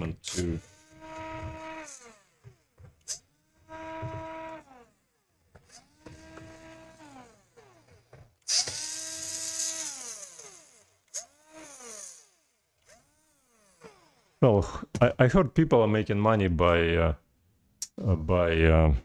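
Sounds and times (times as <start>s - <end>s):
electric screwdriver motor whine: 0.6s - 14.4s.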